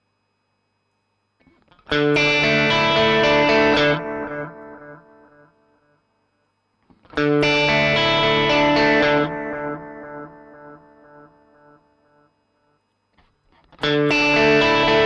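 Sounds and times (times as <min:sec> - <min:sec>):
electric guitar with delay echoes: 0:07.0 - 0:12.7, 0:13.7 - 0:15.0.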